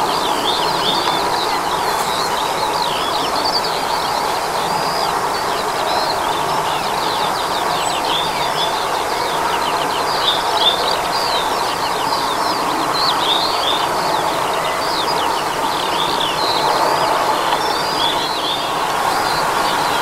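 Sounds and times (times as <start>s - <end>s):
distant jet engine noise: 0.0s - 20.0s
songbird chirping and warbling: 0.0s - 20.0s.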